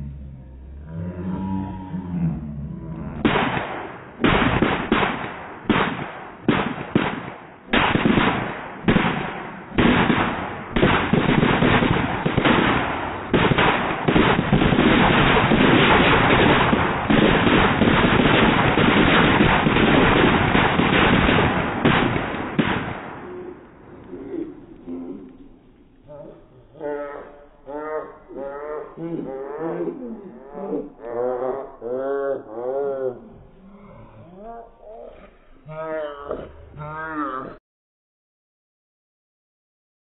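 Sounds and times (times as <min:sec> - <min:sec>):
firecrackers banging and crackling: 0:03.2 - 0:23.8.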